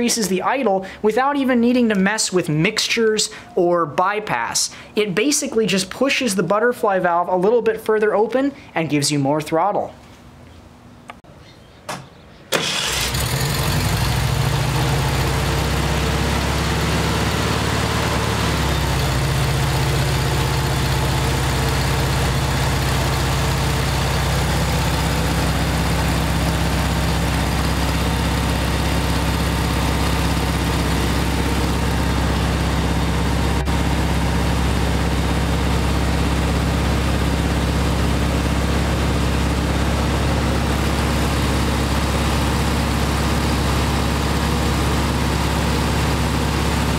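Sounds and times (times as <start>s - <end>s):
engine running at fast idle: 12.6s - 46.9s.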